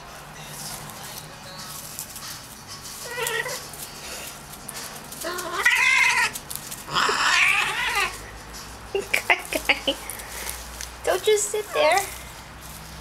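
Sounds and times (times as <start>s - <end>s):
cat yowling: 3.0s - 3.7s, 5.2s - 8.2s.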